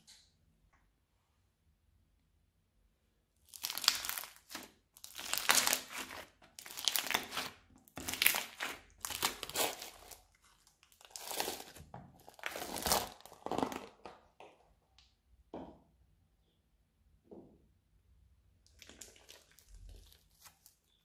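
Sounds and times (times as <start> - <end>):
slime crunching and crinkling: 3.4 - 14.5, 18.7 - 21.0.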